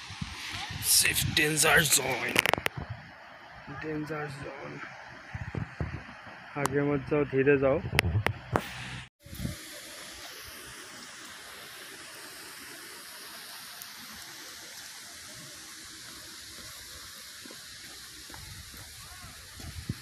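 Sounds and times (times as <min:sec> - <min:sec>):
falling water rushing: 0:00.0 - 0:06.5, 0:08.5 - 0:20.0.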